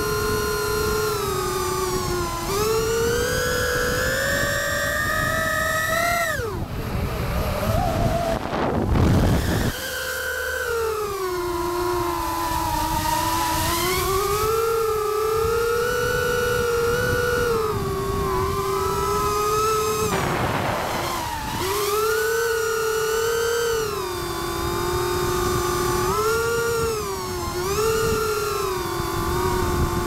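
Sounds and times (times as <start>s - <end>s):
drone motors whining: 0.0s - 30.0s
rush of air: 20.0s - 22.0s.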